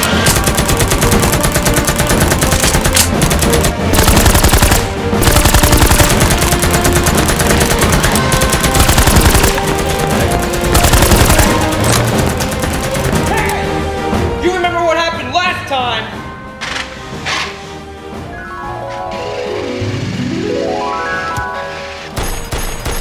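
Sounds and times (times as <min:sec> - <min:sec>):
background music: 0:00.0 - 0:23.0
automatic gunfire sound effects: 0:00.1 - 0:13.2.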